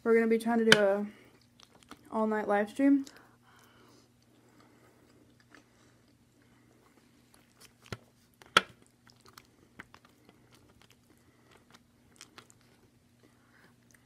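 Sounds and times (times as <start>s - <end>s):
chewing and mouth clicks: 1.2s - 2.1s, 3.0s - 14.0s.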